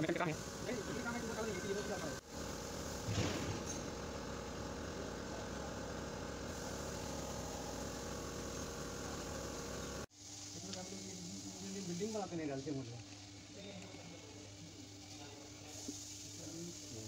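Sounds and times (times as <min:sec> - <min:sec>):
machine hum: 0:00.0 - 0:10.5.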